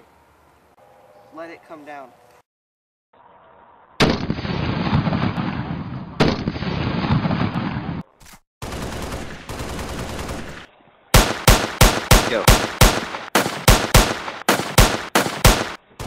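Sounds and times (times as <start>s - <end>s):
automatic gunfire: 8.6s - 10.6s, 11.2s - 15.8s.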